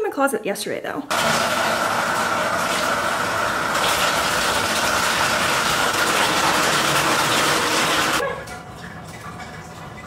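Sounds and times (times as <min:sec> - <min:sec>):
water pouring into bathtub: 0:01.1 - 0:08.2.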